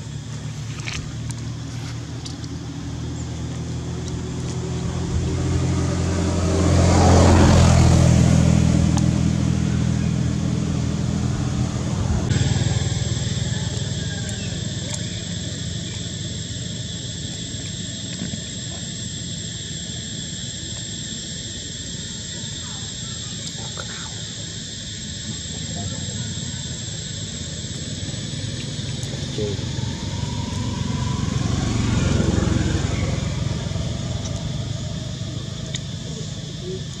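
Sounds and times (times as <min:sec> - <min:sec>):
vehicle engine passing by: 0:00.0 - 0:18.7, 0:26.1 - 0:37.0
faint hum: 0:00.0 - 0:37.0
steady high-pitched tone: 0:12.0 - 0:28.0.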